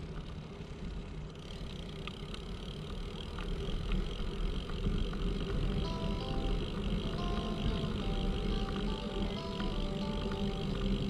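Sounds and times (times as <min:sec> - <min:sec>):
bicycle tyres rolling: 0:00.0 - 0:11.0
faint high steady tone: 0:05.6 - 0:11.0.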